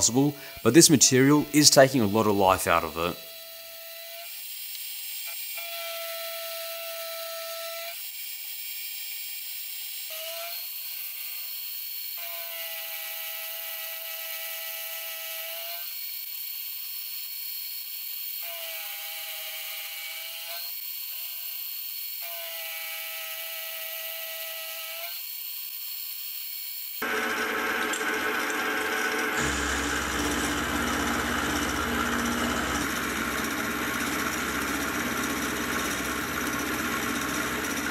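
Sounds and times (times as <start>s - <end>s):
loud rough cutting noise: 0.0s - 3.4s, 27.0s - 37.9s
milling machine spindle whine: 27.0s - 37.9s.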